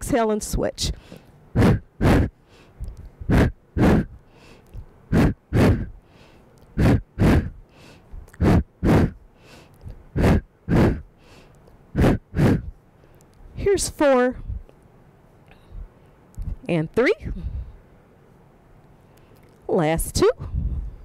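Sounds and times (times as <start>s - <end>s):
woman's forceful breaths: 0.8s - 13.2s, 15.5s - 16.6s, 17.2s - 17.9s, 20.4s - 21.0s.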